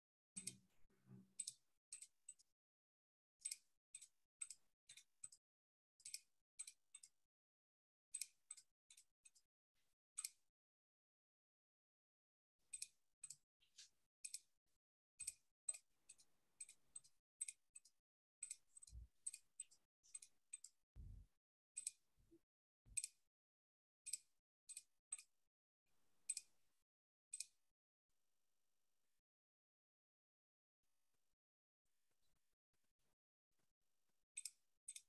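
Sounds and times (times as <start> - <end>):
faint irregular clicking: 0.4 - 2.5.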